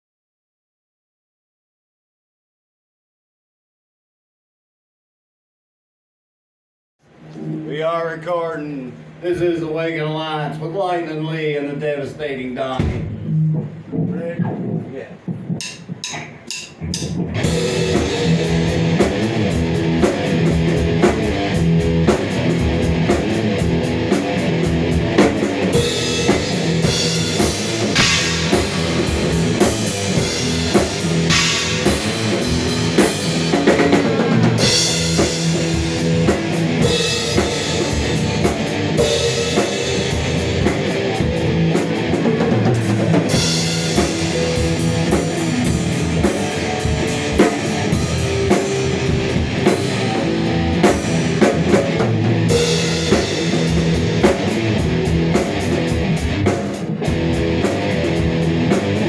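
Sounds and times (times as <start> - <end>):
electric guitar riffing: 7.1 - 9.2, 13.0 - 59.0
drum kit beat: 12.8 - 59.0
cymbal crashes: 25.4 - 42.0.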